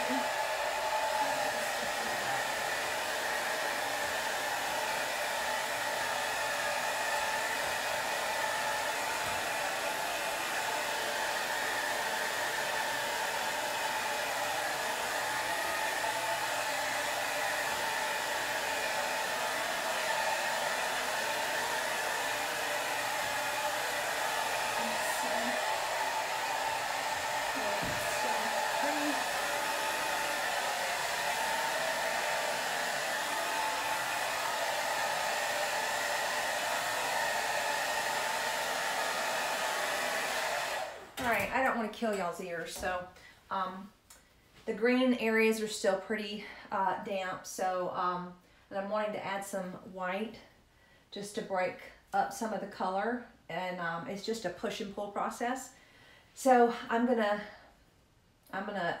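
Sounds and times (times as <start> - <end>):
hair dryer running: 0.0 - 43.0.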